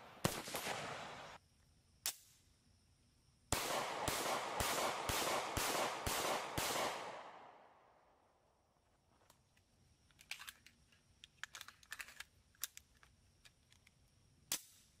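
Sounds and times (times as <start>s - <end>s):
faint irregular clicks: 9.2s - 14.1s.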